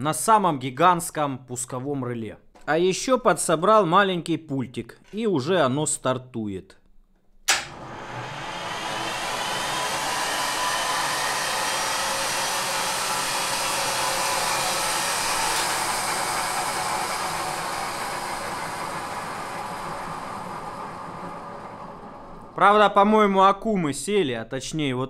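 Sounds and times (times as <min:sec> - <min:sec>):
starter relay click: 0:07.4 - 0:07.8
turbine engine whirring: 0:07.6 - 0:22.9.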